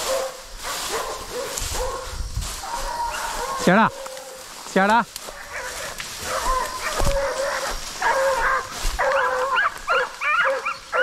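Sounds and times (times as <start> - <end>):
dog baying: 5.4 - 11.0.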